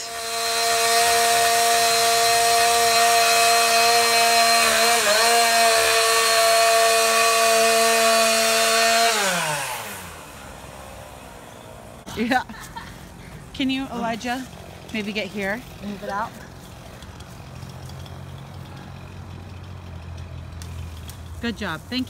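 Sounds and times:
chainsaw at full throttle: 0.0s - 11.6s.

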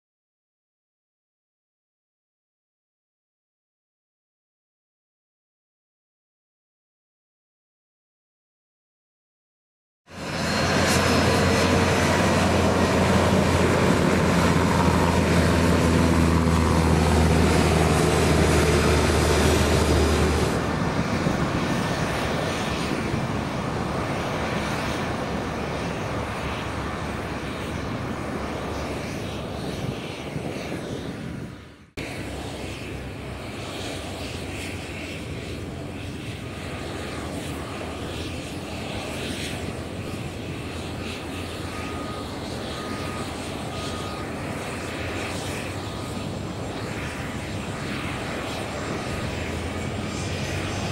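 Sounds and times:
whining engine tones: 10.1s - 29.9s, 32.0s - 50.9s
jet engines running: 10.1s - 50.9s.

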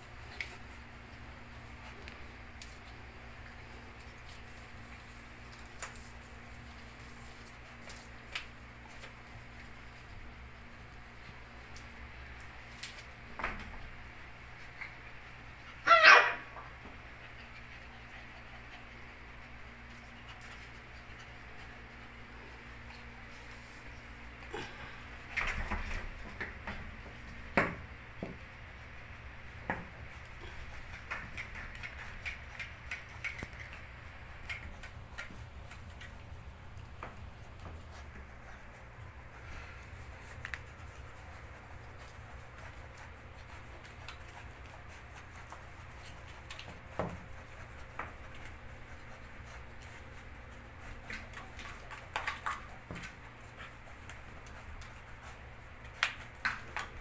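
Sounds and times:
steady low hum: 0.0s - 57.0s
puppy claws clicking on tiles: 29.6s - 57.0s.

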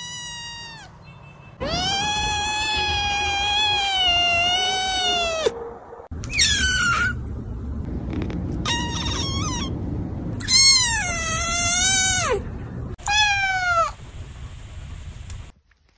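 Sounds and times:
kittens meowing: 1.6s - 5.5s.

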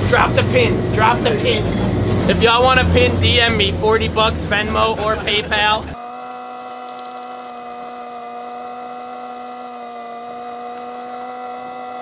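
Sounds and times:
small motor whining: 5.9s - 12.0s.

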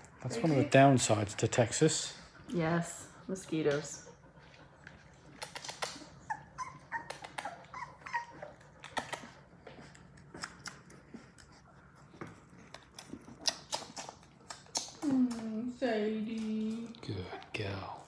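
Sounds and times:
puppies squeaking and whimpering: 5.2s - 15.2s.

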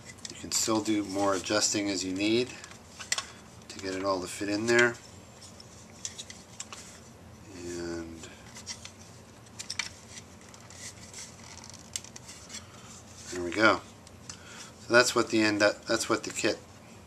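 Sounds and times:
plastic parts clicking and rubbing: 8.5s - 13.7s.

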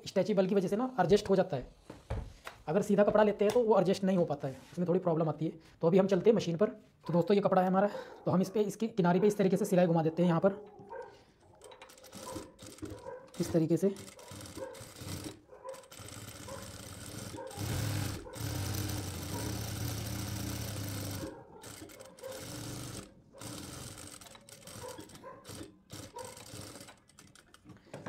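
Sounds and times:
industrial sewing machine stitching: 11.9s - 27.5s.

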